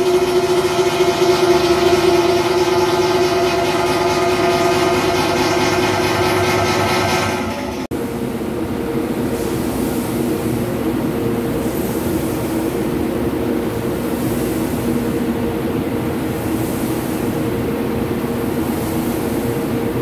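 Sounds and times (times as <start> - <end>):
milling machine humming: 0.0 - 20.0.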